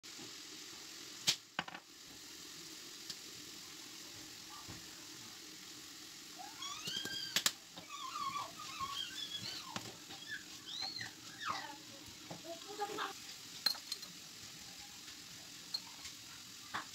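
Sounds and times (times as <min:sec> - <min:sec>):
vegetables sizzling in a frying pan: 0:00.0 - 0:16.9
high squeaky chirps: 0:06.5 - 0:11.7.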